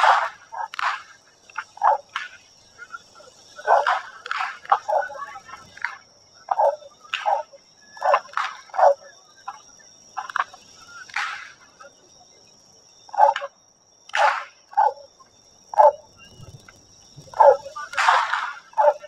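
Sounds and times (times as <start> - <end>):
whips cracking in the distance: 0.0 - 1.2, 3.7 - 5.2, 8.1 - 8.8, 11.1 - 11.6, 14.1 - 14.6, 17.9 - 18.8.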